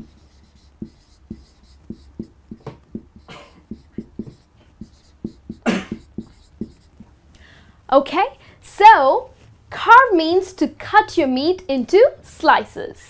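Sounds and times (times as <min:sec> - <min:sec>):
marker squeaking on whiteboard: 0:00.0 - 0:07.2.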